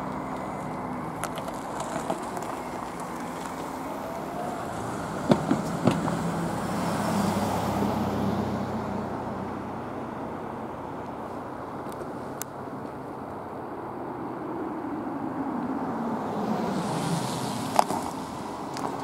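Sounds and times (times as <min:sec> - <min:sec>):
vehicle engine hum passing: 0:00.0 - 0:19.0.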